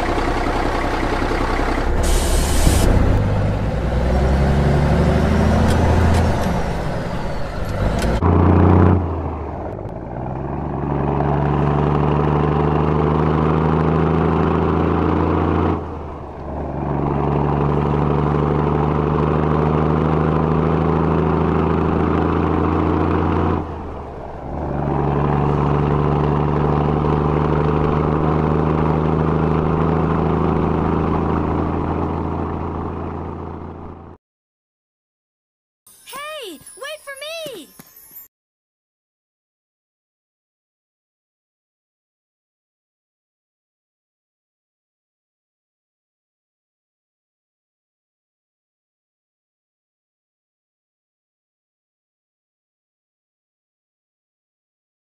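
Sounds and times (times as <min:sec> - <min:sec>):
truck diesel engine droning: 0:00.0 - 0:34.2
loud hiss: 0:02.0 - 0:02.9.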